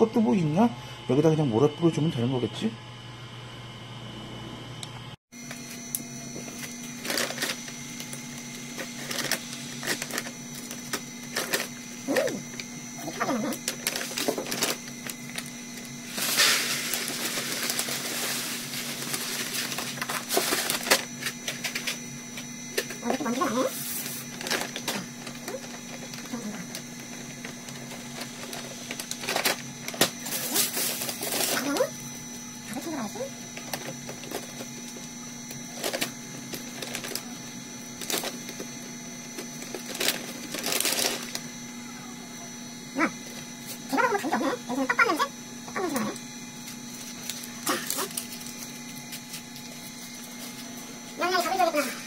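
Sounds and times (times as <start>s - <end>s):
plastic bag crinkling: 13.2s - 21.2s, 35.8s - 37.4s, 39.4s - 41.4s, 46.7s - 49.9s.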